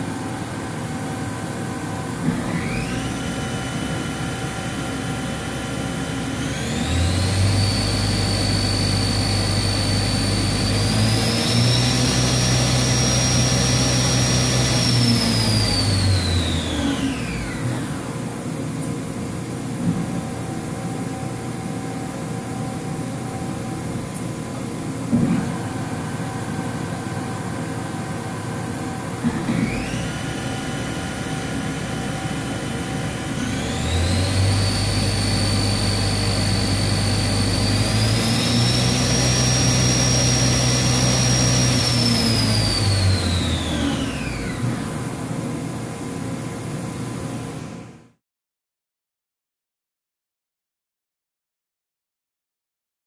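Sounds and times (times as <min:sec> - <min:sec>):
machine spindle whine: 0:00.0 - 0:18.4, 0:25.1 - 0:45.3.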